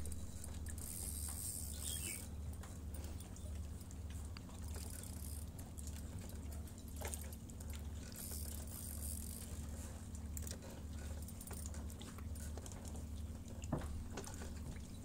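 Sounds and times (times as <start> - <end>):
low pulsing hum: 0.0 - 15.0
fishing reel gears ticking: 0.1 - 2.3, 4.6 - 5.6, 8.0 - 9.7.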